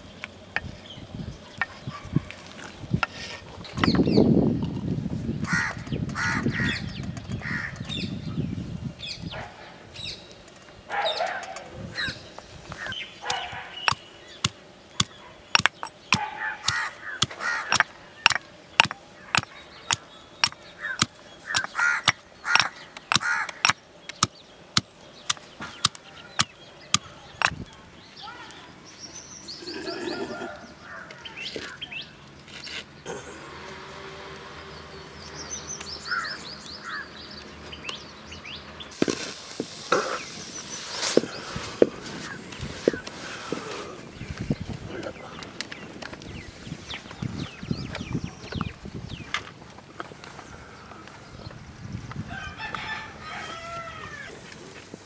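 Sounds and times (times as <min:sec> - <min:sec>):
birds calling: 0:00.0 - 0:55.0
stone pestle pounding in mortar: 0:20.4 - 0:24.3.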